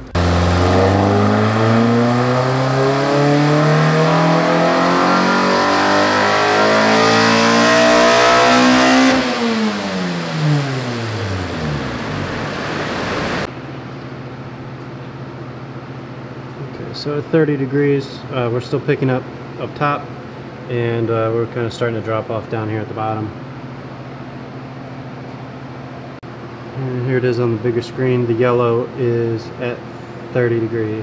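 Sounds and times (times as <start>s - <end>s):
car engine revving: 0.0s - 13.5s.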